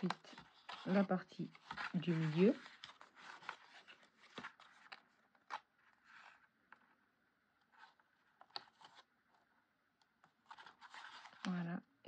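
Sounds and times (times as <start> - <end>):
paper rustling and scraping: 0.0 - 6.5, 7.6 - 9.1, 10.4 - 11.6.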